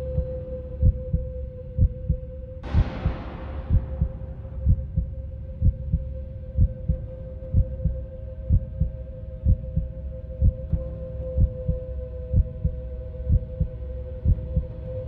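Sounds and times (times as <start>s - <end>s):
humming drone: 0.0s - 15.0s
heartbeat double thump: 1.8s - 7.9s.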